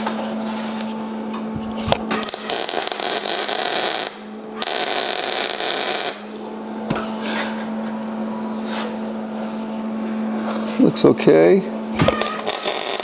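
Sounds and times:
steady hum: 0:00.0 - 0:13.0
welder arc crackling: 0:01.9 - 0:06.3, 0:12.0 - 0:13.0.

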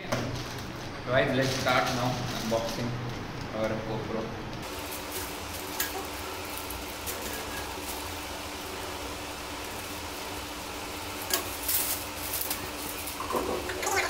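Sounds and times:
plastic crackling and rustling: 0:00.2 - 0:03.4, 0:11.2 - 0:14.0.

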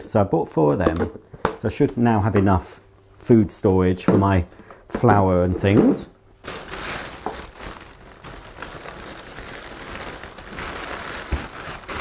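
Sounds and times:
plastic bag rustling: 0:06.4 - 0:12.0.

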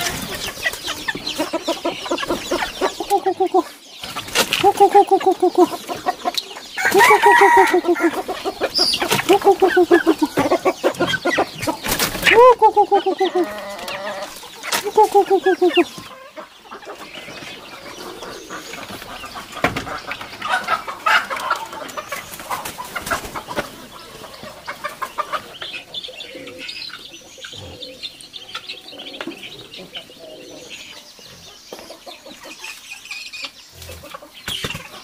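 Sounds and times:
hen cackling: 0:00.0 - 0:03.8, 0:04.5 - 0:17.0
chickens clucking: 0:00.0 - 0:35.0
ducklings peeping: 0:00.0 - 0:35.0.

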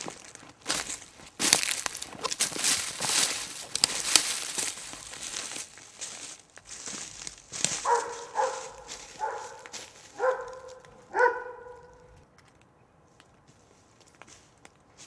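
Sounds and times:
crunching footsteps: 0:00.0 - 0:15.0
dog barking: 0:07.8 - 0:12.2.

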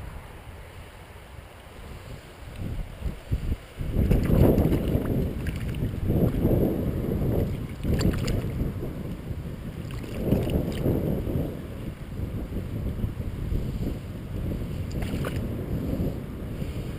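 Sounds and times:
wind buffeting microphone: 0:01.7 - 0:16.9
river water splashing: 0:03.9 - 0:08.7, 0:09.7 - 0:11.0, 0:14.9 - 0:15.5
fish thrashing in water: 0:04.0 - 0:06.4, 0:07.4 - 0:08.6.

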